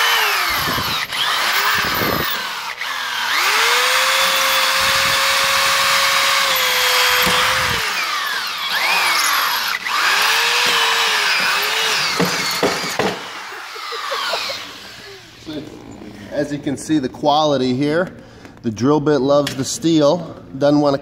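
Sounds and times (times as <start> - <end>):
drill bit knocking: 0.0 - 14.5
power drill grinding into metal: 0.0 - 16.0.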